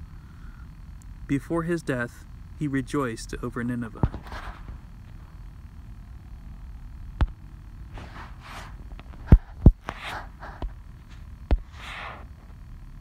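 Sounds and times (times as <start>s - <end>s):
microphone handling thumps: 4.0s - 5.3s, 7.2s - 12.6s
soft rustles: 4.1s - 5.4s, 7.9s - 12.6s.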